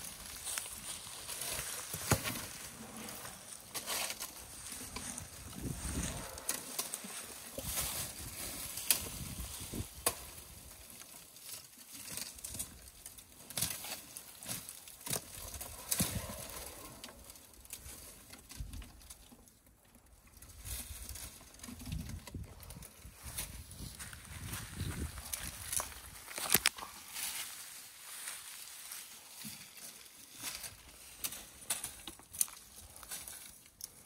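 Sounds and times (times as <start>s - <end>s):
elephant tearing up dry grass: 0.0s - 18.7s
dry stems snapping: 6.2s - 18.8s, 25.2s - 26.9s, 30.4s - 34.0s.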